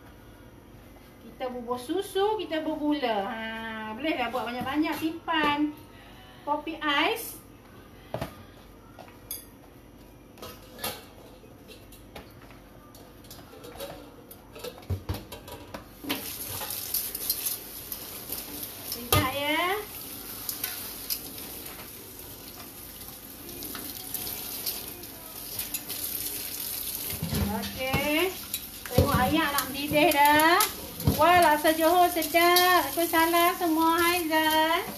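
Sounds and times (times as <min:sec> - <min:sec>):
hot oil hissing and crackling: 0:16.0 - 0:34.9.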